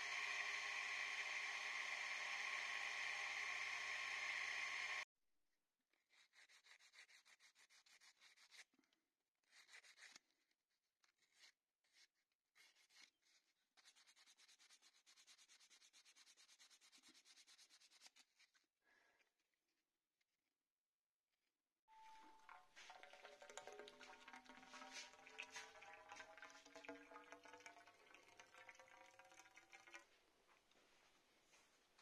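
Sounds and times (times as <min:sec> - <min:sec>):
bench power tool running: 0:00.0 - 0:05.0
sandpaper rubbing on wood: 0:06.1 - 0:08.6, 0:12.6 - 0:18.5.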